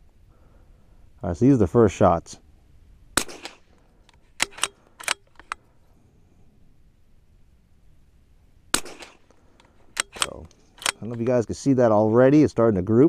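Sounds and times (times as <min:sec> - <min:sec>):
rifle shot with echo: 0:03.2 - 0:03.8, 0:08.7 - 0:11.2
rifle bolt metal clicks: 0:03.2 - 0:05.7, 0:08.8 - 0:11.4.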